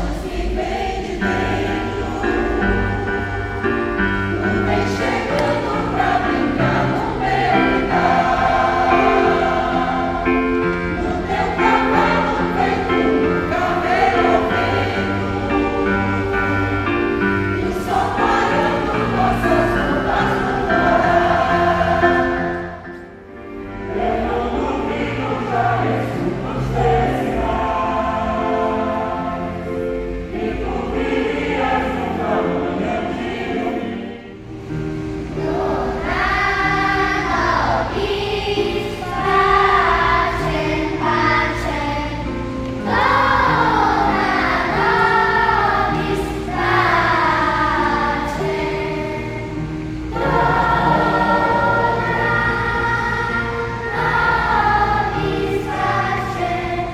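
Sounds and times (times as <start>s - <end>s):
choir singing: 0.0s - 56.9s
electronic keyboard: 0.0s - 56.9s.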